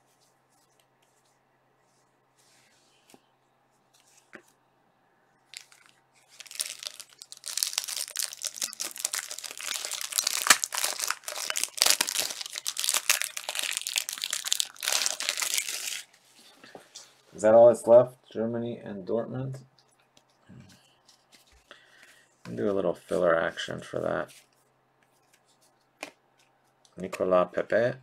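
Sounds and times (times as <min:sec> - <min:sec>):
plastic wrapper crinkling and tearing: 0:05.5 - 0:16.2.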